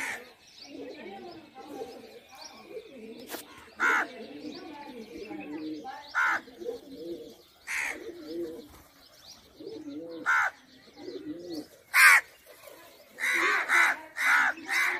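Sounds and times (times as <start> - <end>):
pigeons cooing: 0.0 - 14.9
crow cawing: 6.2 - 6.4, 7.7 - 8.0, 10.2 - 10.6, 12.0 - 12.3.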